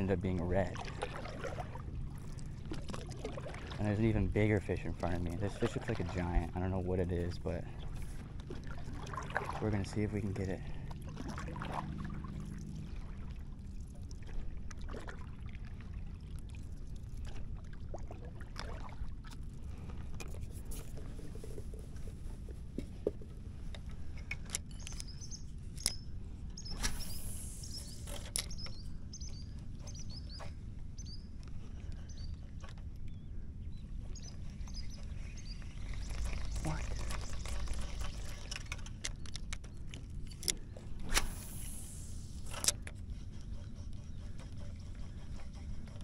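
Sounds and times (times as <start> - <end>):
paddle strokes in water: 0.0 - 24.2, 40.6 - 46.0
low steady rumble: 0.0 - 32.2.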